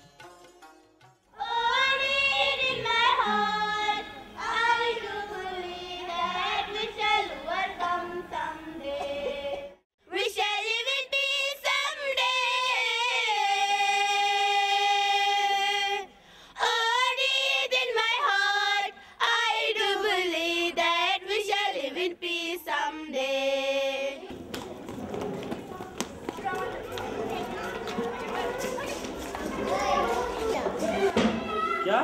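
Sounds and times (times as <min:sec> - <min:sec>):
children singing together: 0:01.4 - 0:24.3.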